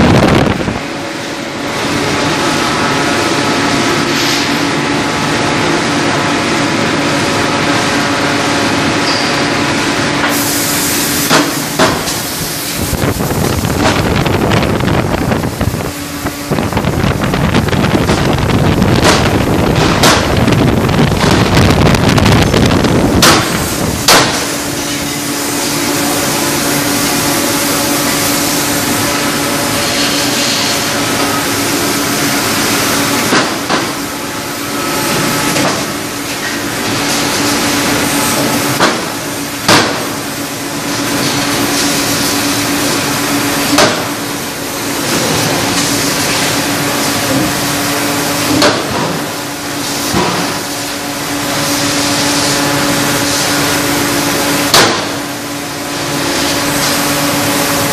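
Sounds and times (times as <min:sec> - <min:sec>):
loud rushing noise: 0:00.0 - 0:09.0, 0:09.6 - 0:36.2
machine hum: 0:00.0 - 0:57.9
forging hammer striking hot steel: 0:11.2 - 0:12.3, 0:18.9 - 0:20.5, 0:23.2 - 0:25.2, 0:33.2 - 0:34.0, 0:38.8 - 0:40.3, 0:43.7 - 0:44.2, 0:48.5 - 0:49.3, 0:54.6 - 0:55.4.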